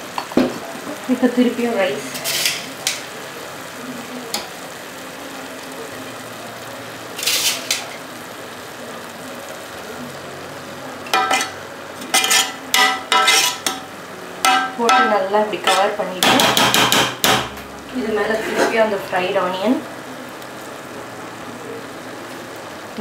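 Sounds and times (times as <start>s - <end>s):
steady sizzling hiss: 0.0s - 23.0s
spatula scraping and clinking pot: 11.2s - 13.8s, 14.5s - 16.7s, 18.3s - 18.8s
spoon scraping rice in metal pot: 13.2s - 13.7s.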